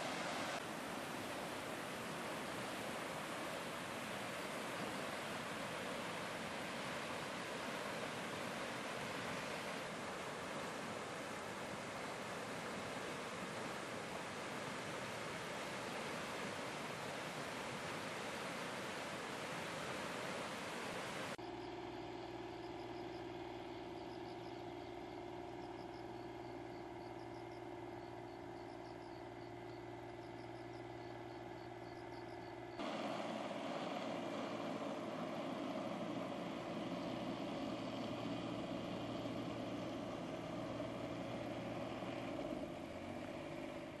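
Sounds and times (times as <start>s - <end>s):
construction machine engine running: 32.5s - 44.0s.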